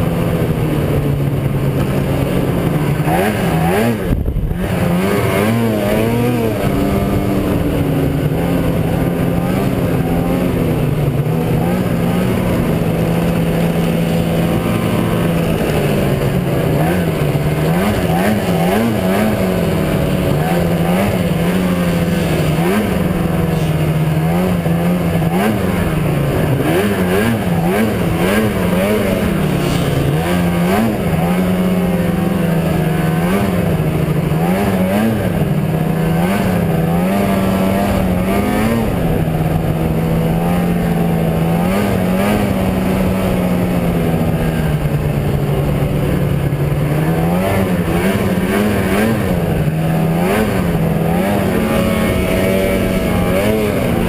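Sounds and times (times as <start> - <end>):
snowmobile engine running: 0.0 - 54.0.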